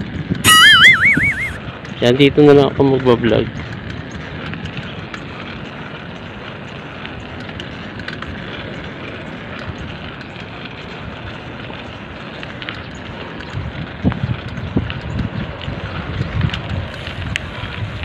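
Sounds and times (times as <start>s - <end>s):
wind rushing on microphone: 0.0s - 5.2s, 13.2s - 18.0s.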